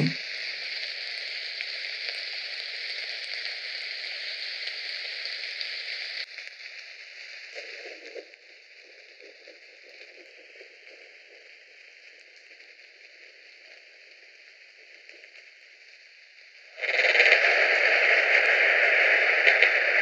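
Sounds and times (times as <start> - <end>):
steady rain hiss: 0.0 - 20.0.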